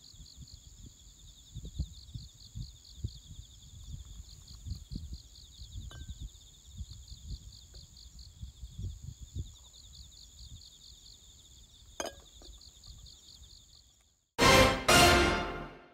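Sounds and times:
crickets chirping: 0:00.0 - 0:14.2
low wind rumble: 0:00.2 - 0:10.7
glassware clink: 0:12.0 - 0:12.3.

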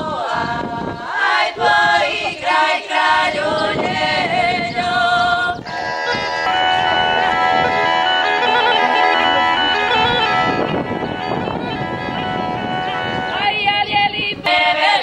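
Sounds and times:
women singing folk song: 0:00.0 - 0:06.3, 0:13.0 - 0:15.0
bagpipe playing: 0:05.6 - 0:13.7.

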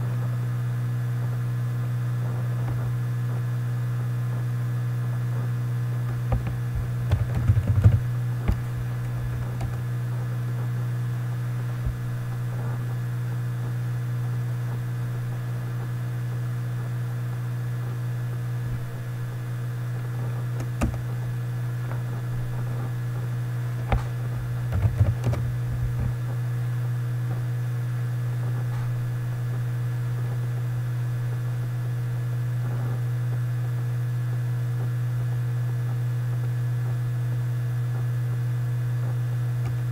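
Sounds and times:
low electrical hum: 0:00.0 - 0:39.9
key or mouse clicks: 0:06.3 - 0:08.6
typing on a keyboard: 0:06.3 - 0:08.6, 0:24.7 - 0:25.4.

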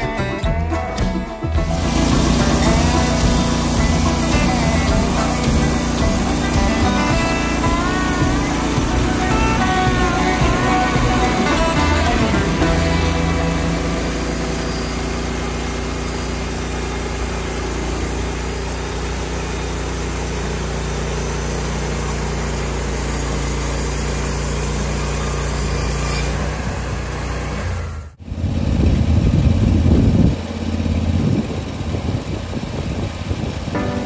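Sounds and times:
sawmill gas engine running: 0:01.5 - 0:34.0
blade sawing log: 0:01.6 - 0:28.2.

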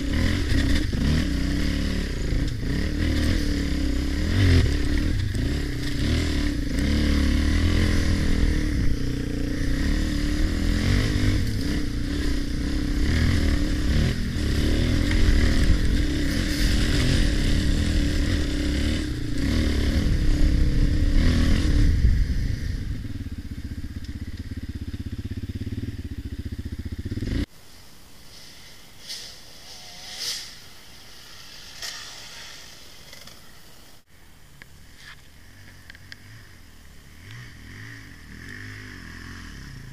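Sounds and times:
dirt bike engine running: 0:00.0 - 0:27.5
faint dirt bike revving: 0:00.0 - 0:27.6, 0:28.4 - 0:39.9.

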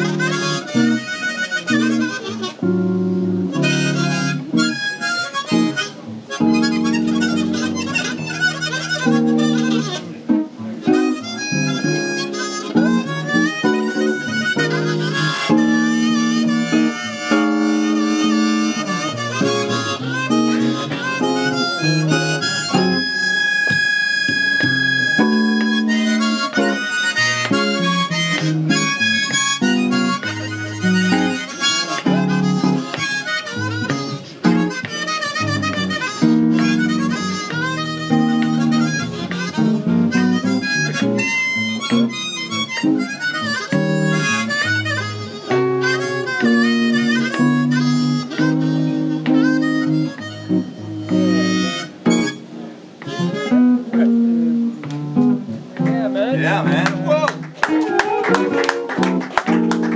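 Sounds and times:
guitar accompaniment: 0:00.0 - 0:59.9
harmonica jazz melody: 0:00.0 - 0:59.9.

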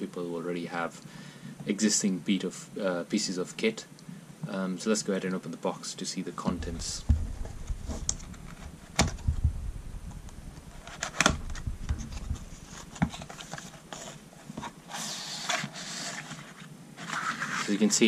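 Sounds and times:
cardboard sliding rustle: 0:06.5 - 0:09.4, 0:10.5 - 0:18.0.

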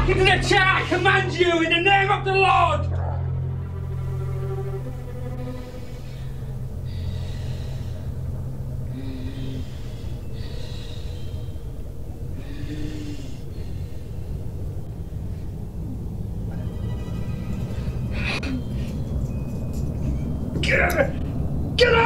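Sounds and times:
low drone: 0:00.0 - 0:22.0
heavy breathing: 0:03.0 - 0:20.5.

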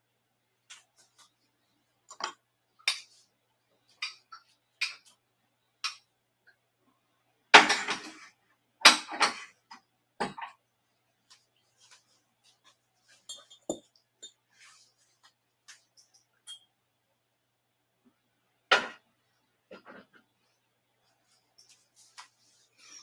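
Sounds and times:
dishes clinking and knocking: 0:07.6 - 0:08.3, 0:13.3 - 0:14.4.

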